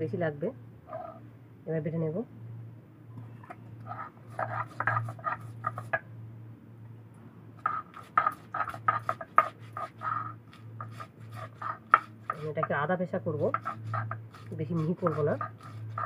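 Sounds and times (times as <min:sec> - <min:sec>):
stone roller grinding on slab: 0:03.9 - 0:06.0, 0:07.6 - 0:16.0.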